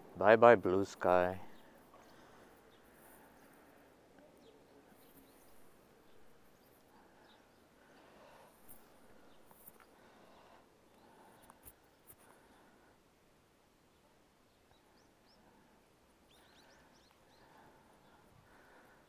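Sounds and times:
faint ticks: 0:08.6 - 0:10.0.

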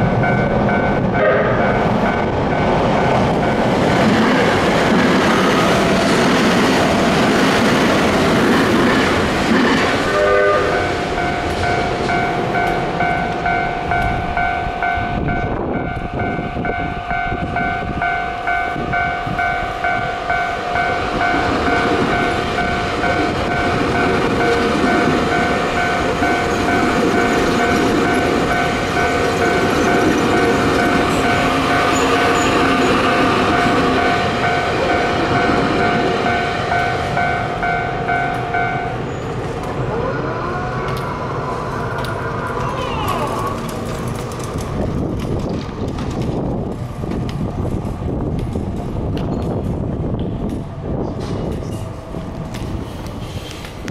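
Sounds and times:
train wheels clattering on rails: 0:00.0 - 0:40.0, 0:40.8 - 0:53.9
level crossing alarm clanging: 0:10.2 - 0:39.5.

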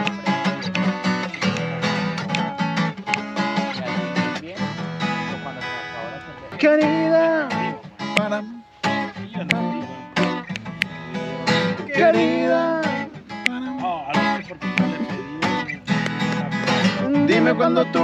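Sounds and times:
acoustic guitar strumming: 0:00.0 - 0:18.0
person singing: 0:06.3 - 0:10.4, 0:11.0 - 0:15.7, 0:16.6 - 0:18.0.

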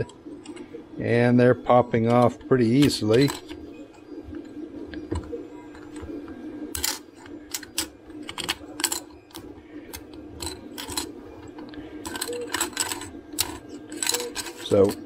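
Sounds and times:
low hum of printers: 0:00.0 - 0:15.0
plastic parts clacking together: 0:06.7 - 0:15.0.

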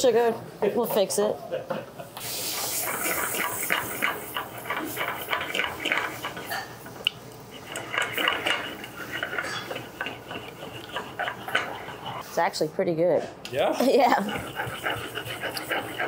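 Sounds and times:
metal spoon stirring thick sauce: 0:07.6 - 0:12.2.

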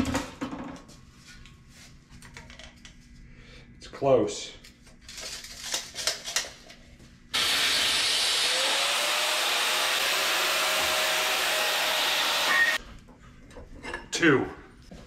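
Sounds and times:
power cutting tool hissing: 0:07.4 - 0:12.8.

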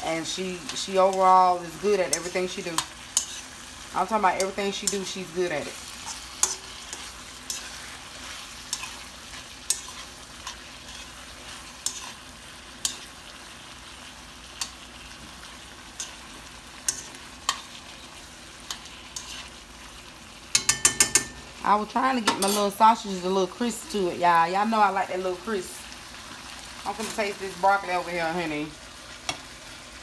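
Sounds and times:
sausage sizzling in a skillet: 0:00.0 - 0:30.0
utensil tapping and scraping pan: 0:16.8 - 0:17.7, 0:20.5 - 0:21.4.

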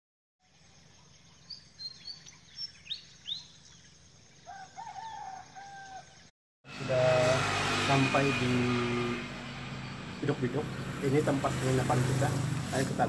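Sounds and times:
small birds chirping: 0:00.4 - 0:06.3, 0:09.4 - 0:12.9
rooster crowing: 0:04.5 - 0:06.3.

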